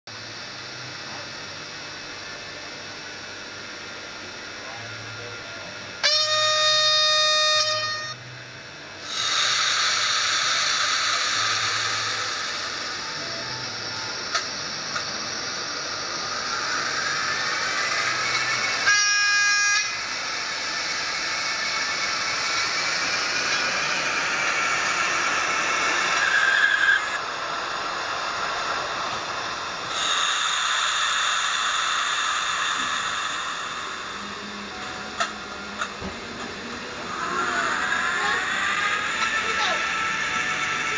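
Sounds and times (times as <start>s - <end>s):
high squeal: 6.0s - 8.2s, 9.0s - 40.9s
model locomotive horn: 6.0s - 8.3s, 17.9s - 20.2s
steady rushing hiss: 8.9s - 40.9s.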